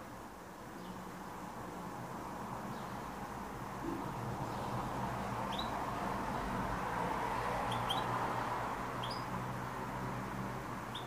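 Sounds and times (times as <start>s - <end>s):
canary chirps: 3.8s - 6.3s, 7.4s - 11.0s.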